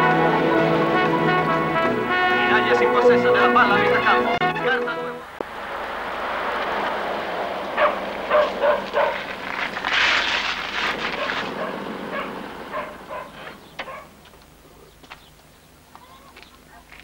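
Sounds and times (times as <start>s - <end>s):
car tyres crunching on gravel: 5.4s - 15.5s.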